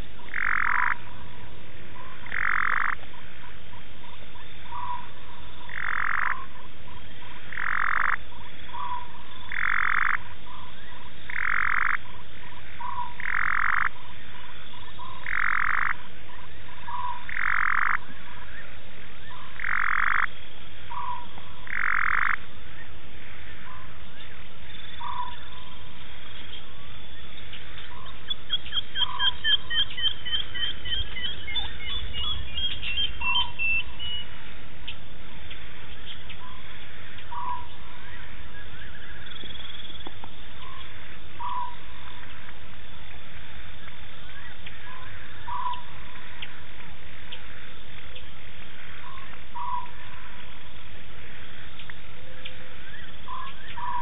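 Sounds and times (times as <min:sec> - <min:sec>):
frog harsh call: 0:00.3 - 0:01.1, 0:02.1 - 0:03.6, 0:04.4 - 0:12.1, 0:12.7 - 0:14.0, 0:14.9 - 0:16.1, 0:16.8 - 0:18.7, 0:19.4 - 0:22.5.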